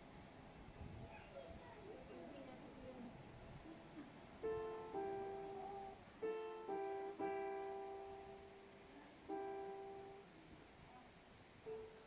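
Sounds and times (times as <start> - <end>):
slow sparse piano notes: 4.4 - 10.3, 11.6 - 12.0.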